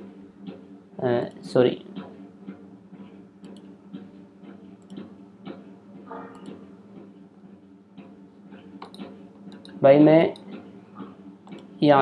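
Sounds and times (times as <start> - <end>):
steady low hum: 0.0 - 12.0
computer mouse clicks: 3.4 - 3.7, 4.8 - 5.6, 6.2 - 6.6, 8.8 - 10.6, 11.4 - 11.8.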